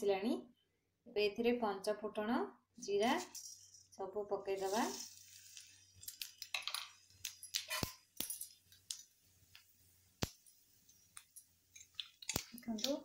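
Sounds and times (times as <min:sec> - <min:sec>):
spice seeds crackling in hot oil: 0:02.8 - 0:13.0
oil sizzling: 0:03.0 - 0:13.0.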